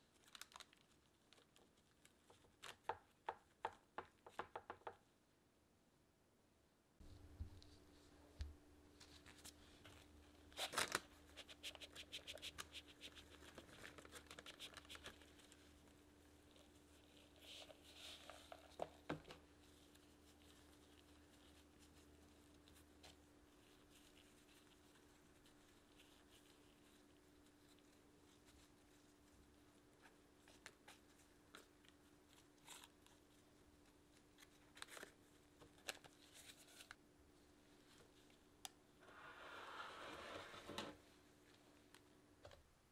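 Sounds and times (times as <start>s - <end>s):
crumbly topping crunching and rustling: 0.0s - 3.3s, 7.2s - 37.0s.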